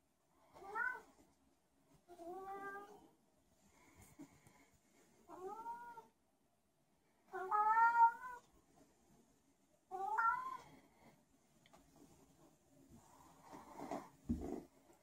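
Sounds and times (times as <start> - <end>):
cat meowing: 0.6 - 1.1, 7.3 - 8.5, 9.9 - 10.7.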